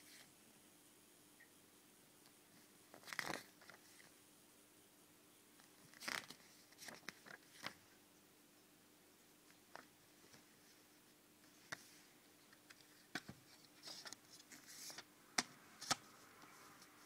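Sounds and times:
paper rustling: 2.9 - 4.1, 5.6 - 7.8, 12.7 - 15.1.

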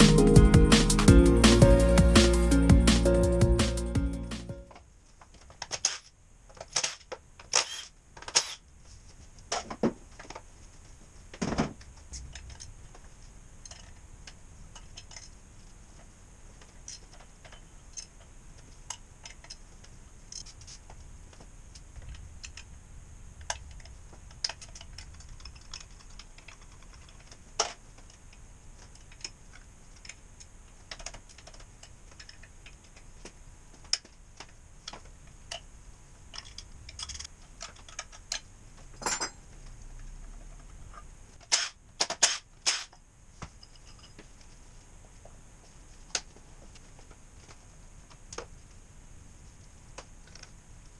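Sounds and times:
tools clicking and knocking: 13.6 - 15.4, 16.6 - 20.8, 36.3 - 39.4, 41.4 - 43.0.

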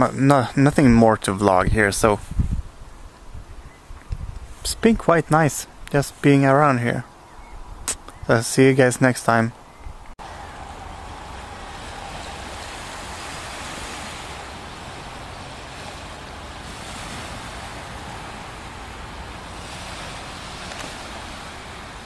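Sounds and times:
wind rushing: 9.9 - 22.0
gentle surf on seashore: 10.2 - 22.0.

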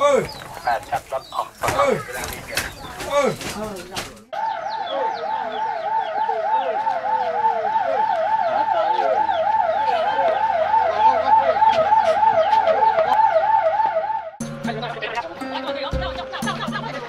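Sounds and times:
ambulance siren warbling: 4.3 - 15.0.

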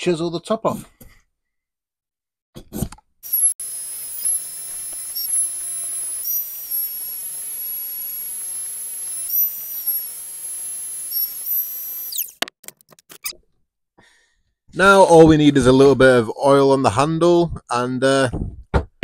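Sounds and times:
belt sander whining: 3.2 - 12.4
belt sander winding down: 3.2 - 12.4.

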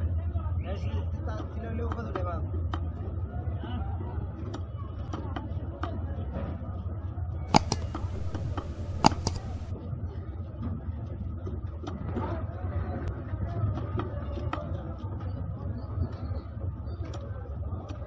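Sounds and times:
fish cut on a blade: 7.5 - 9.7.

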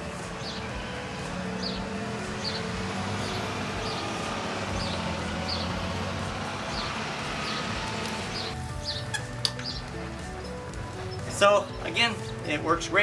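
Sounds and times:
vehicle engine running: 0.0 - 12.9
bird chirping: 0.4 - 6.1, 6.7 - 12.6.

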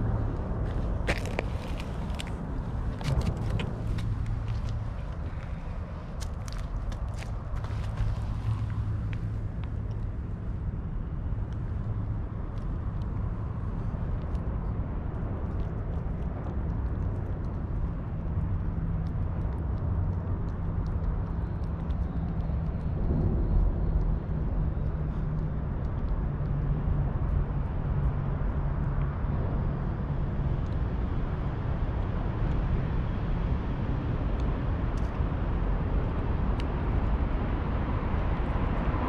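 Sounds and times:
distant city traffic rumble: 0.0 - 39.0
low engine hum: 0.0 - 39.0
cat licking ticks: 8.0 - 29.1.

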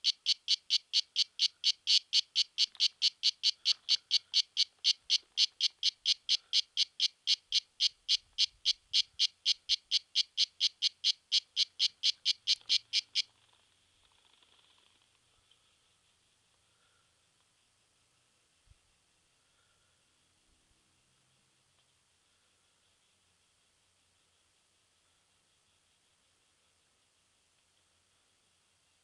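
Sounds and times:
cicada chirping: 0.0 - 13.3.

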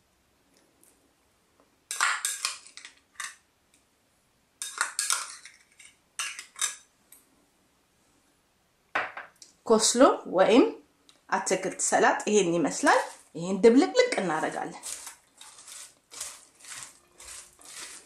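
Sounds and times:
coleslaw stirred in glass bowl: 12.8 - 13.4, 14.4 - 18.0.

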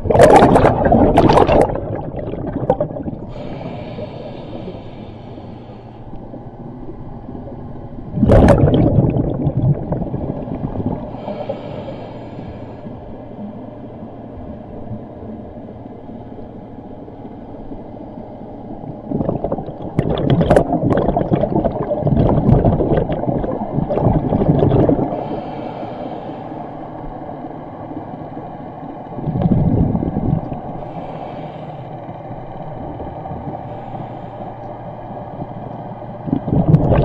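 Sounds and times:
underwater bubbles rushing: 0.0 - 5.4, 6.1 - 12.3, 18.8 - 25.5, 27.1 - 31.0, 35.2 - 37.0
steady low hum: 0.0 - 37.0.

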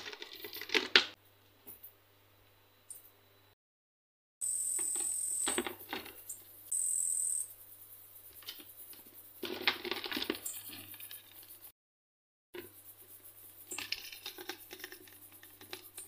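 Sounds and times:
high insect buzzes: 4.4 - 9.6
insect legs scratching on plastic: 13.7 - 16.0.

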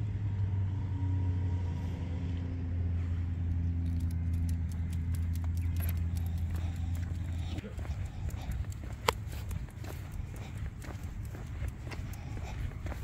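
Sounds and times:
vehicle engine humming: 0.0 - 13.0
light rapid clicking and jingling: 3.8 - 13.0.

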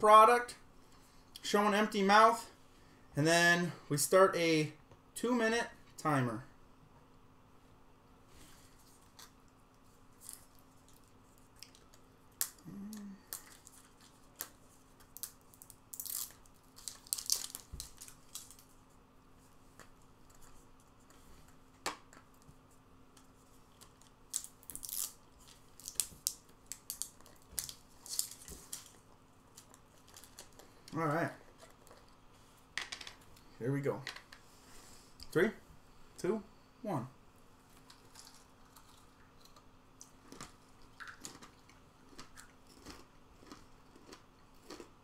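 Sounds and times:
packaging crinkling and tearing: 13.4 - 18.8, 23.8 - 30.8.

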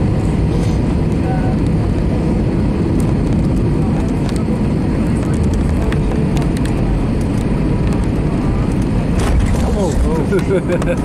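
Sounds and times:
low rumble of airliner landing: 0.0 - 11.0.

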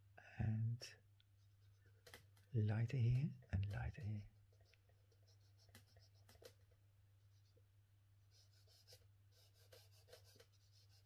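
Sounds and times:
scratchy drawing strokes on paper: 4.5 - 6.6, 8.3 - 11.0.

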